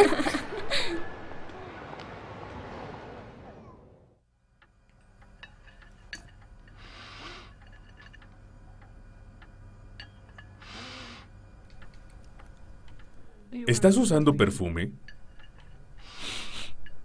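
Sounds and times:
low steady hum: 0.0s - 17.0s
man sniffing through nose: 10.6s - 11.3s.

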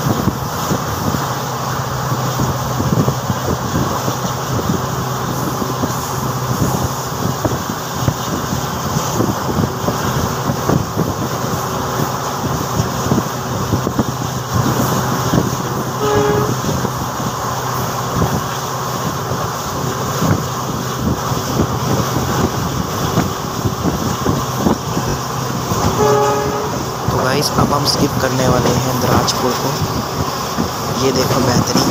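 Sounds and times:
train rolling and wind noise: 0.0s - 31.9s
train horn blast: 15.9s - 17.0s, 25.7s - 27.1s.

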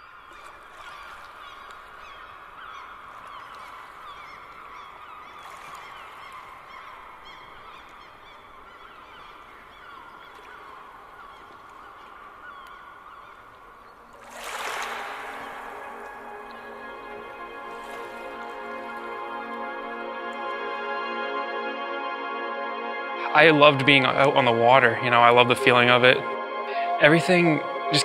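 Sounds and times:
flock of birds calling: 0.0s - 20.0s.

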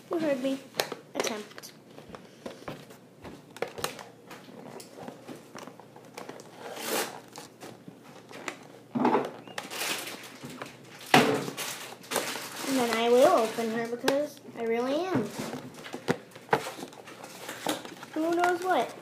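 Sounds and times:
loud plastic crackles: 3.5s - 14.3s, 15.3s - 19.0s
plastic packaging crinkling: 3.5s - 14.3s, 15.3s - 19.0s.

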